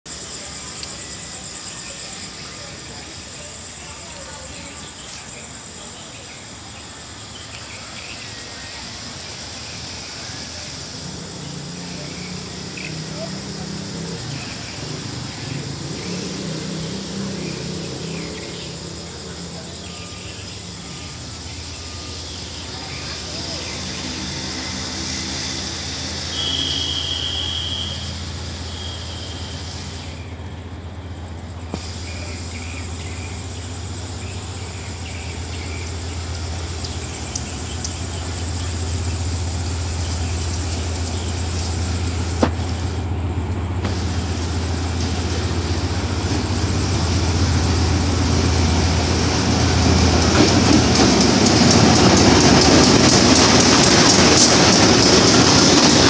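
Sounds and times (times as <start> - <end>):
locomotive engine drone: 0.0 - 56.0
crickets chirping: 0.1 - 56.0.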